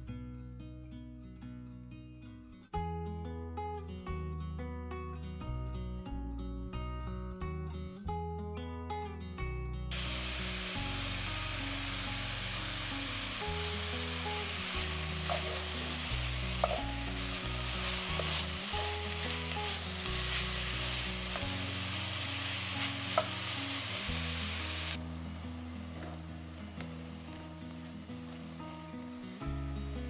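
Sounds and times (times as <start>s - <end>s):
vegetables sizzling in a pot: 9.9s - 30.0s
wooden spoon stirring: 16.4s - 21.5s.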